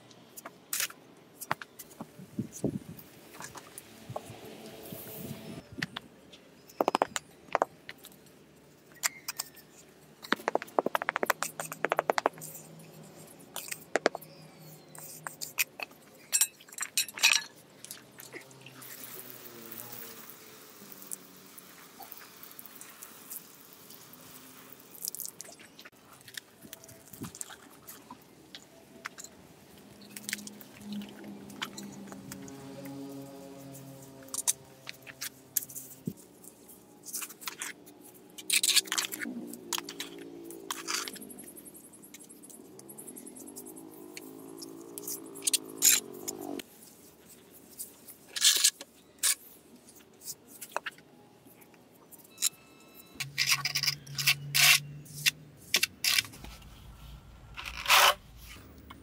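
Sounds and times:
water spray hissing: 18.6s - 25.4s
hand tools scraping on sand and brick: 55.8s - 58.8s.

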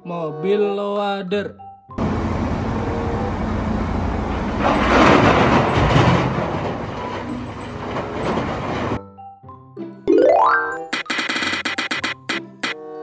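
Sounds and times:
wheel loader diesel engine running: 2.0s - 9.0s.

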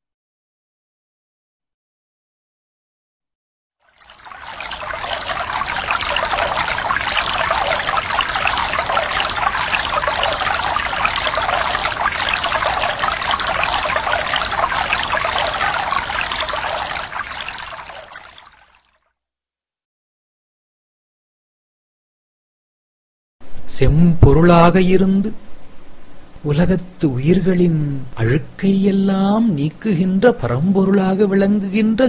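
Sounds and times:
running water stream: 3.9s - 18.9s.

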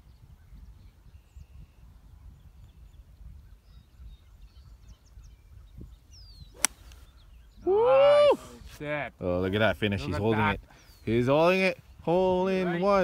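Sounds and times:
faint bird chirps: 0.0s - 7.8s
wind rumble on microphone: 0.0s - 8.7s.

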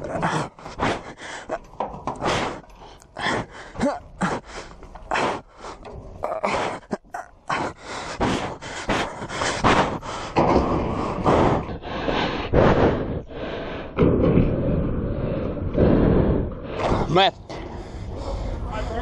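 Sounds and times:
person breathing hard and grunting: 0.0s - 19.0s.

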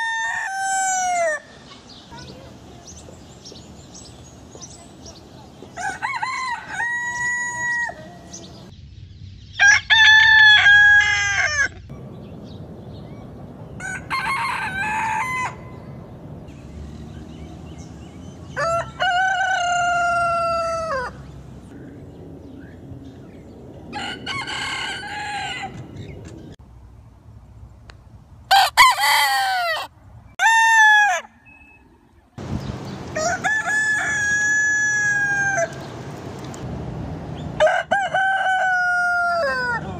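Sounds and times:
roosters crowing: 0.0s - 1.6s, 5.6s - 8.4s, 9.5s - 11.9s, 13.8s - 15.9s, 17.8s - 21.6s, 23.9s - 26.2s, 28.5s - 31.6s, 32.9s - 36.0s, 37.4s - 39.9s.

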